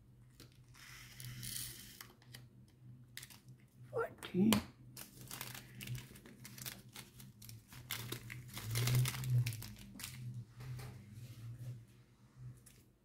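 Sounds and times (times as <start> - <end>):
plastic bags crinkling: 5.0 - 10.3.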